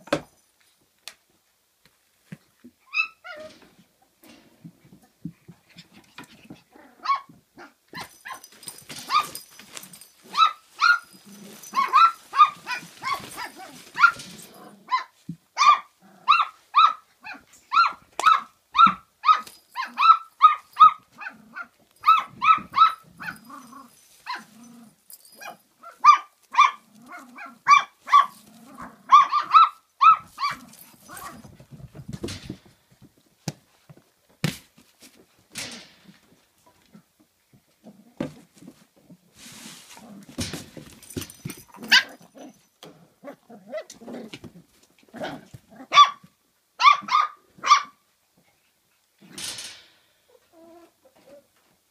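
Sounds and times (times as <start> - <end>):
puppy barking: 10.3 - 14.3, 14.9 - 24.5, 25.4 - 28.4, 29.0 - 31.4, 41.8 - 42.2, 45.2 - 48.0.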